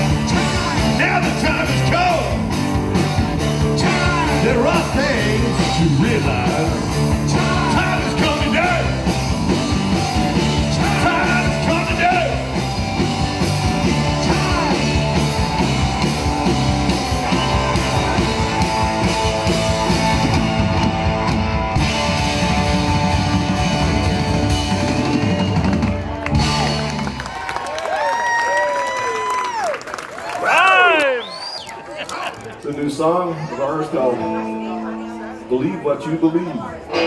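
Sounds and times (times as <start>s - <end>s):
drum kit: 0.0s - 27.5s
electric guitars: 0.0s - 28.0s, 33.4s - 37.0s
bass guitar: 0.0s - 28.1s, 32.4s - 37.0s.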